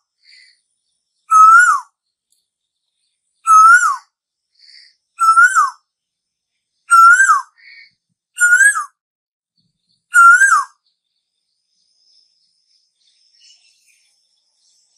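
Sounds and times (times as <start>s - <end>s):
bird whistled calls: 1.3s - 1.9s, 3.4s - 4.1s, 5.2s - 5.8s, 6.9s - 9.0s, 10.1s - 10.8s.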